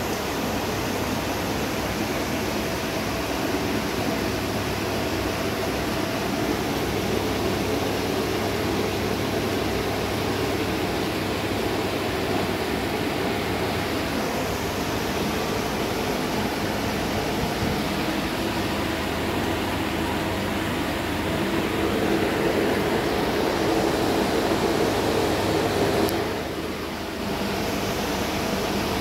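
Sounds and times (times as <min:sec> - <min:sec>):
aquarium air pumps bubbling: 0:00.0 - 0:29.0.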